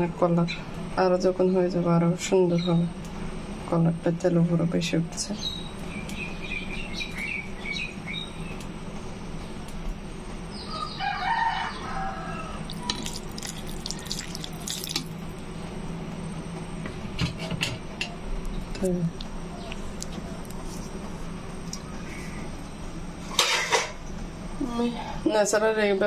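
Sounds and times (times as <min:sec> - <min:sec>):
steady low hum: 0:00.0 - 0:26.0
rooster crowing: 0:10.6 - 0:13.0.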